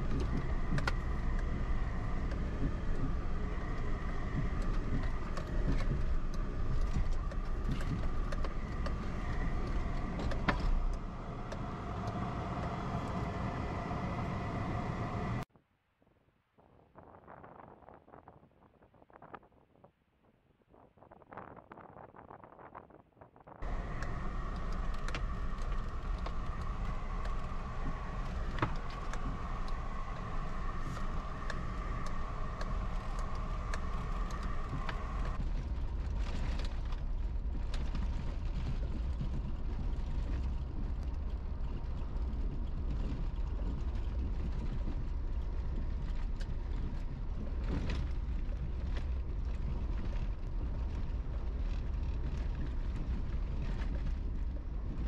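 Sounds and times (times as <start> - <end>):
car engine and road rumble: 0.0 - 15.5, 23.6 - 55.0
steady whine: 0.0 - 15.5, 23.6 - 51.0.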